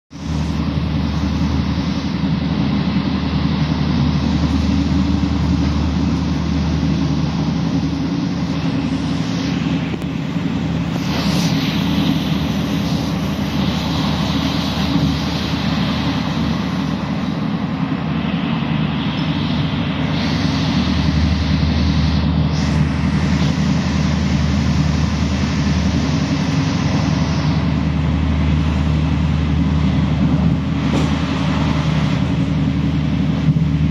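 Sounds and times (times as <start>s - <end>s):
hiss of rolling noise: 0.1s - 33.9s
train rumble inside carriage: 0.1s - 33.9s.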